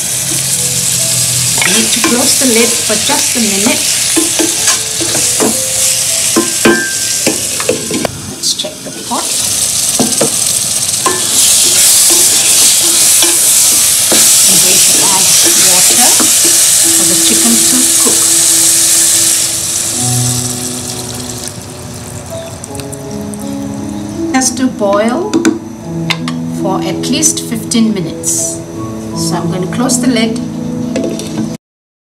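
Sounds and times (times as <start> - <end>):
food sizzling in oil: 0.0 - 24.1.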